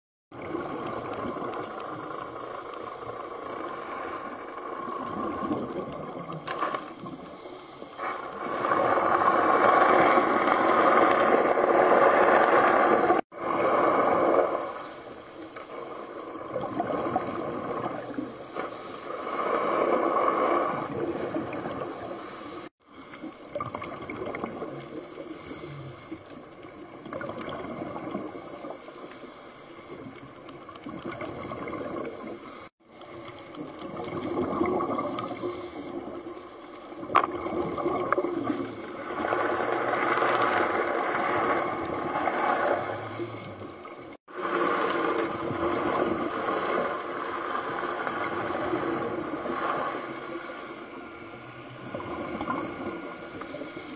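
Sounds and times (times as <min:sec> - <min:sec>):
diver exhaling underwater bubbles: 0:00.4 - 0:28.8, 0:30.0 - 0:32.7, 0:33.4 - 0:53.9.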